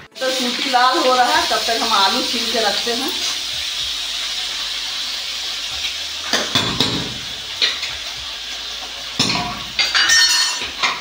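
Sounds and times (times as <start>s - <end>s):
steady hissing: 1.7s - 6.5s.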